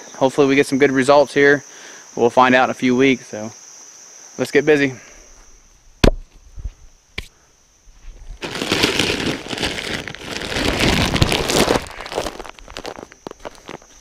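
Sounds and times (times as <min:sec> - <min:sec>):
corn pouring onto the ground: 0:08.4 - 0:14.0.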